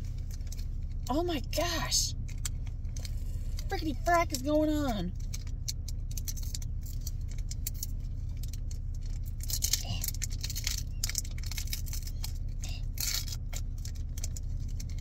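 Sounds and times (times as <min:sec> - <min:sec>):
steady low hum: 0:00.0 - 0:15.0
foil wrapper crinkling: 0:05.1 - 0:15.0.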